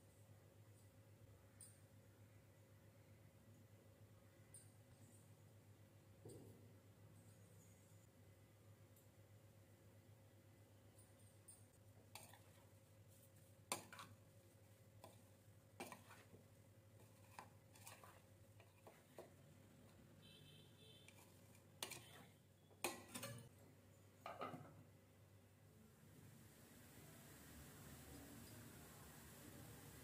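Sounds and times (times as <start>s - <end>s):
spoon scraping against bowl: 11.5s - 14.2s, 15.0s - 16.4s, 17.0s - 20.0s, 21.0s - 23.5s.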